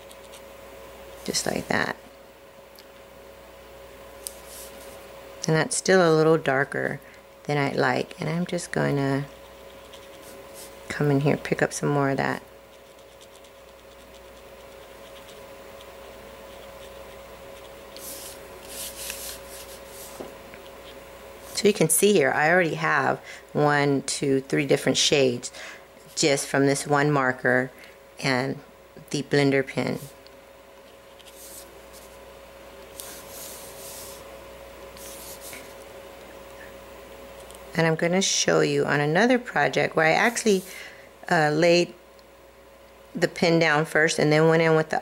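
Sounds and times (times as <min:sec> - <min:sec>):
steady electrical hum: 0:00.0 - 0:45.0
pen brush tip dabbing: 0:16.5 - 0:20.2
scratchy rustle: 0:17.6 - 0:20.2, 0:33.0 - 0:34.2.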